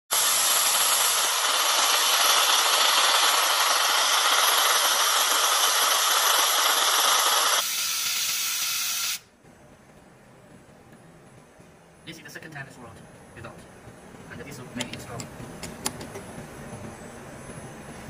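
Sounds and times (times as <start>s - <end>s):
laser welder hissing: 0.1s - 9.3s.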